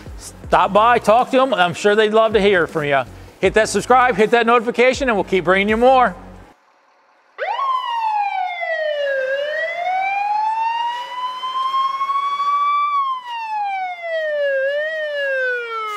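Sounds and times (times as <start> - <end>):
fire engine siren wailing: 6.8 - 15.9.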